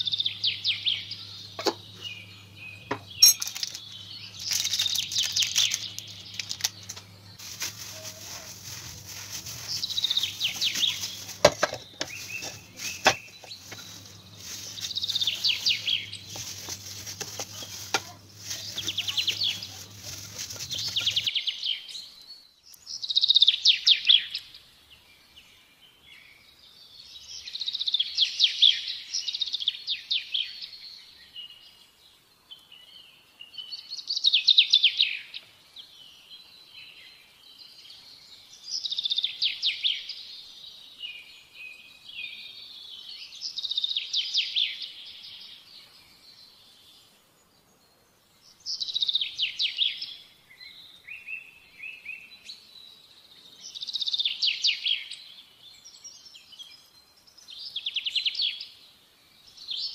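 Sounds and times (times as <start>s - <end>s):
songbird chirping and trilling: 0.0s - 59.9s.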